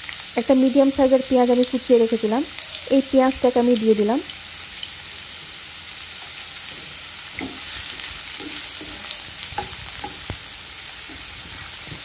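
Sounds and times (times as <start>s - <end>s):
onion sizzling in oil: 0.0s - 12.0s
wooden spatula scraping pan: 6.7s - 10.3s.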